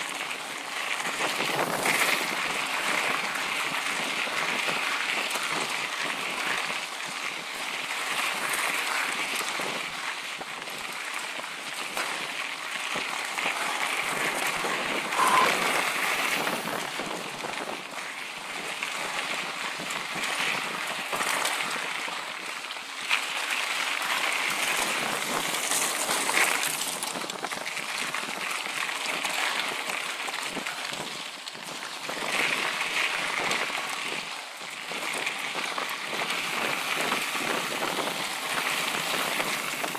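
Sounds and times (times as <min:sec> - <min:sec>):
bike rattling: 0:00.0 - 0:39.9
bike tyres on gravel: 0:00.0 - 0:39.9.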